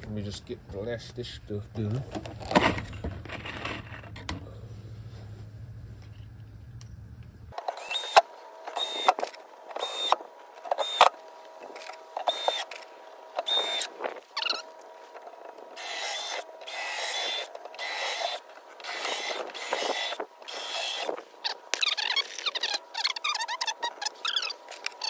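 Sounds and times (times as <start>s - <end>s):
cordless drill driving screws: 7.6s - 11.2s, 12.2s - 12.8s, 13.4s - 14.6s, 15.7s - 25.0s.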